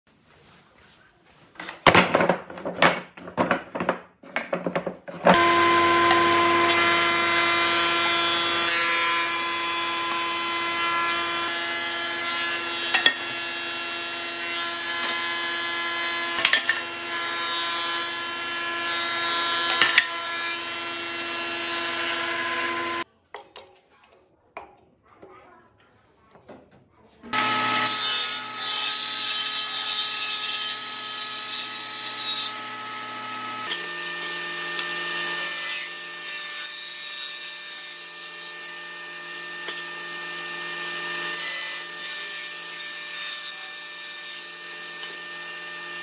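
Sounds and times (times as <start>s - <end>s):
wooden planks knocking and clattering: 1.6s - 5.4s
planer-thicknesser whining: 5.2s - 23.0s.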